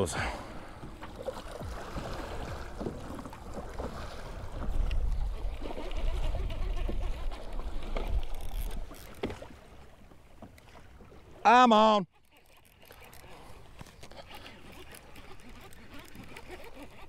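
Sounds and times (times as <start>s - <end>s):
water splashing against kayak hull: 0.0s - 17.0s
wind rumbling on microphone: 0.7s - 8.9s.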